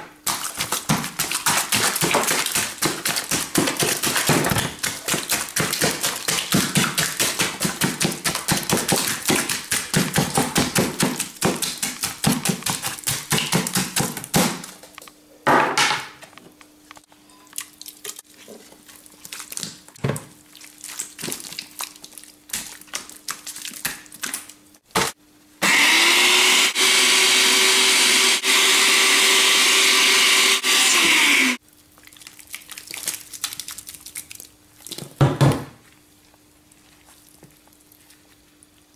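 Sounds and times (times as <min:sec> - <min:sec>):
blender motor running: 0:25.6 - 0:31.6.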